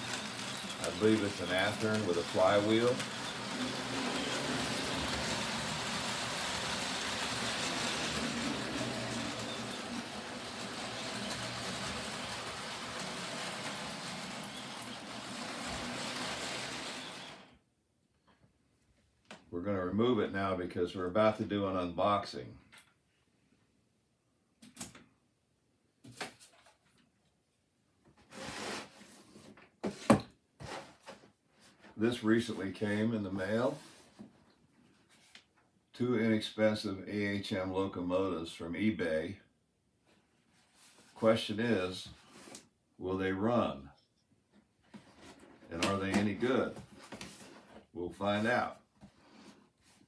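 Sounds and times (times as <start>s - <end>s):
model train motor whirring: 0.0s - 17.5s
wheel and rail noise: 0.0s - 17.6s.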